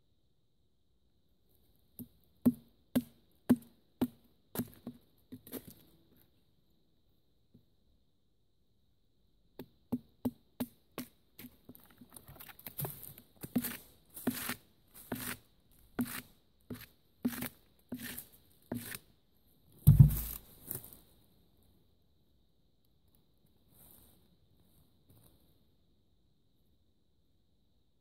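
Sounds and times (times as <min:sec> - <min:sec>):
knife chopping into wood: 0:16.0 - 0:19.0, 0:19.9 - 0:20.4
heavy low thud: 0:19.9 - 0:20.4.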